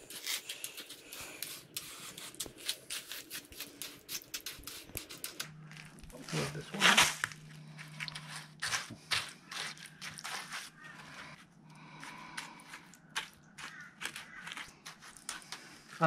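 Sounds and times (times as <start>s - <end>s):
trowel scraping wet concrete: 8.1s - 11.4s.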